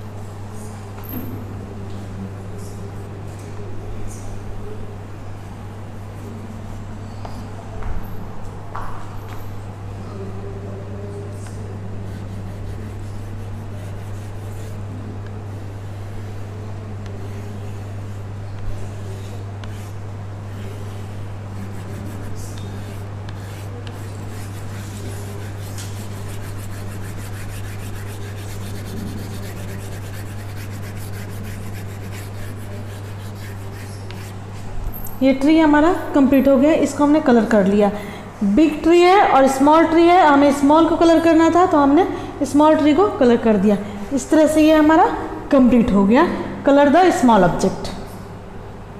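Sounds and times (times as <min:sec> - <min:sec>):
steady low hum: 0:00.0 - 0:38.9
chalk scribbling on blackboard: 0:11.9 - 0:34.4.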